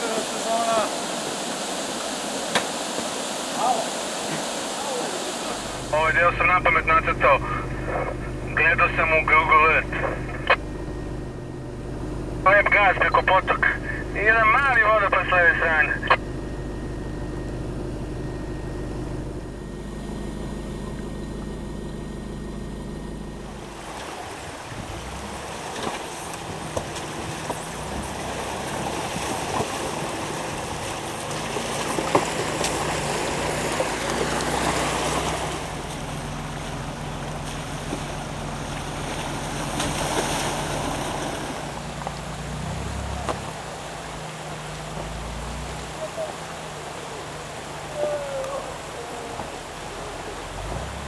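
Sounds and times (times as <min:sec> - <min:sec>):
stream and waterfall rushing: 0:00.0 - 0:06.1
vehicle engine hum: 0:00.0 - 0:51.0.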